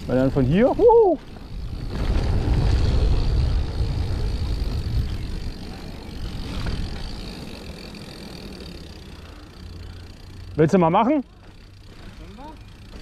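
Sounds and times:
wind rushing over microphone: 0.0 - 8.2
tyres rolling over gravel: 0.0 - 13.0.

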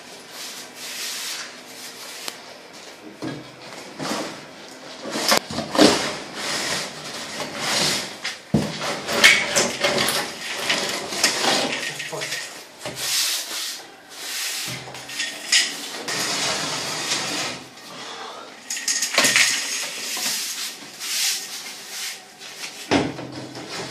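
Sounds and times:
plastering tool scraping render: 5.0 - 12.1, 15.9 - 18.0, 19.8 - 22.9.

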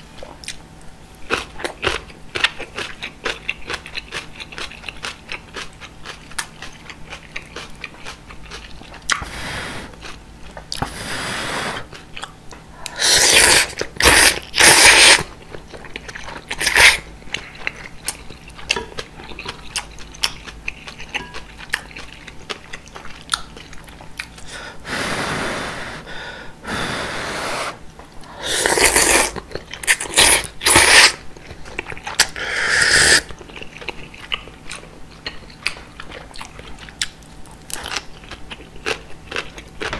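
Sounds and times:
wet chewing: 11.8 - 24.5, 33.1 - 39.9
slurping noodles: 12.9 - 15.3, 26.7 - 27.8, 28.4 - 31.2, 32.4 - 33.3.

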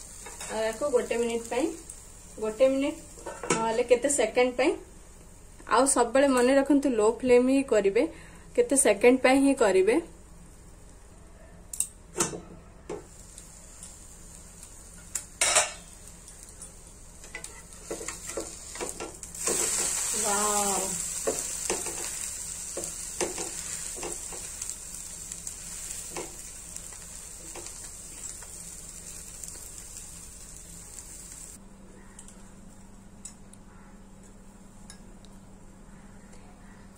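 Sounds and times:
sandwich sizzling in a pan: 0.0 - 3.2, 13.1 - 31.6
spatula scraping and tapping pan: 17.2 - 20.0, 22.8 - 24.5.

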